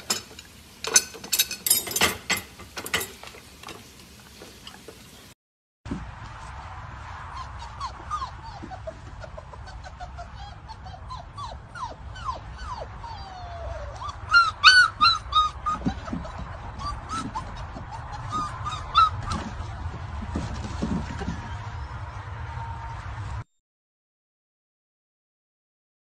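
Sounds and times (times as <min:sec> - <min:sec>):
puppies whining and yelping: 0:07.3 - 0:20.0.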